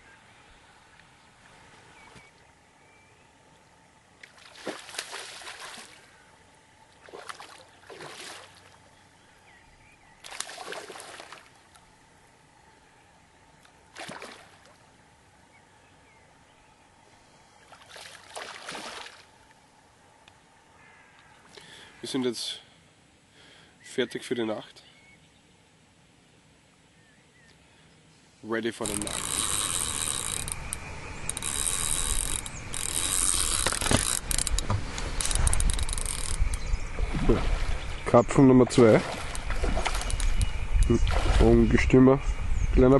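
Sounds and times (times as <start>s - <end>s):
fish splashing in pond: 4.2s - 6.1s, 6.9s - 8.8s, 10.2s - 11.8s, 13.9s - 14.9s, 17.7s - 19.3s, 36.9s - 38.1s, 38.8s - 41.6s
fishing reel ratchet clicking: 28.8s - 34.6s, 35.2s - 36.6s.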